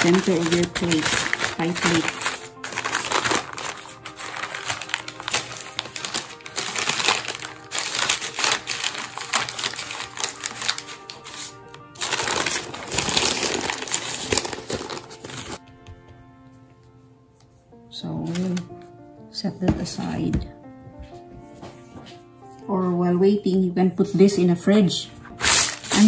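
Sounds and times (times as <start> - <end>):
baking paper crinkling: 0.0 - 15.6, 25.3 - 26.0
soft background music: 0.0 - 26.0.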